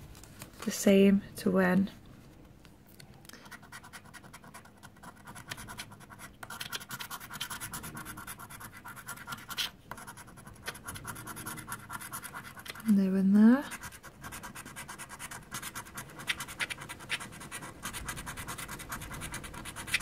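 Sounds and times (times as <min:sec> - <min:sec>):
coin scratching scratch card: 0:03.6 - 0:12.9, 0:13.7 - 0:20.0.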